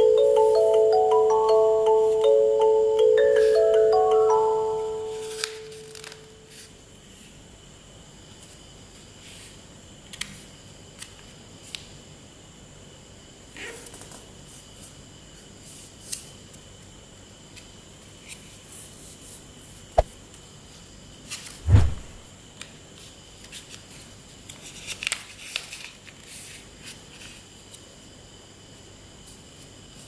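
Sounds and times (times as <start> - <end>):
dull thump: 21.6 - 22.3.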